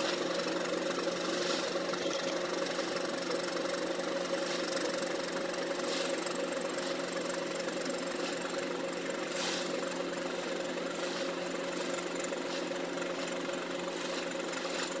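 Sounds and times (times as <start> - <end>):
engine idling hum: 0.0 - 15.0
brief hiss: 9.3 - 9.8.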